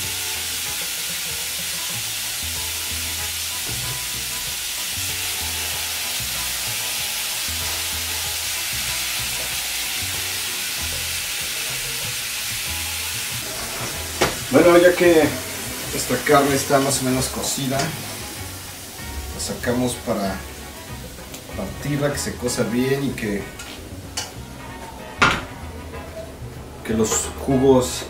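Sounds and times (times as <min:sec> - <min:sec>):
meat and vegetables sizzling: 0:00.0 - 0:27.6.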